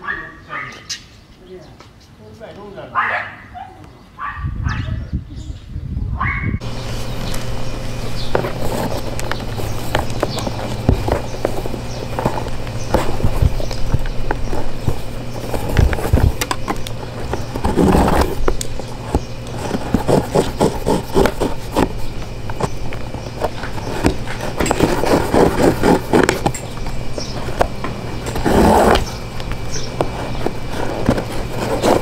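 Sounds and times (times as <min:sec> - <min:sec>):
low steady hum: 0:04.5 - 0:32.0
boot laces scraping through eyelets: 0:07.0 - 0:32.0.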